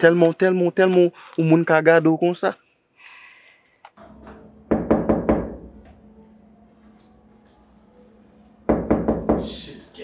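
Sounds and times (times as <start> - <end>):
knocking on a door: 4.7 - 5.9, 8.7 - 9.6.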